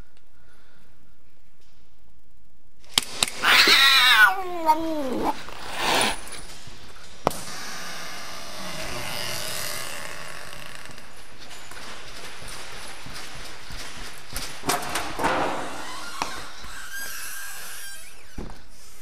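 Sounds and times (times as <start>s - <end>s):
door hinge creaking: 8.4s - 11.2s, 15.2s - 18.6s.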